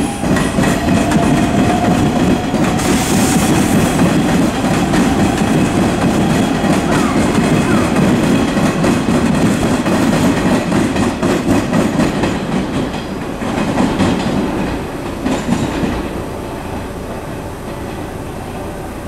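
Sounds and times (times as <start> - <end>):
train wheels clicking over rail joints: 0.0 - 16.8
train rumble: 0.0 - 19.0.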